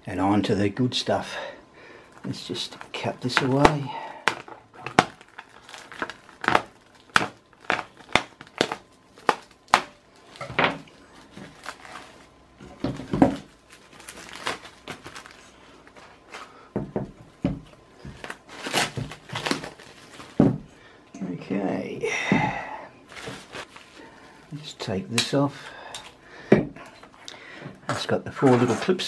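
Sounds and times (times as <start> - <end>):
plastic wrap crinkling: 2.0 - 21.0, 23.0 - 26.2.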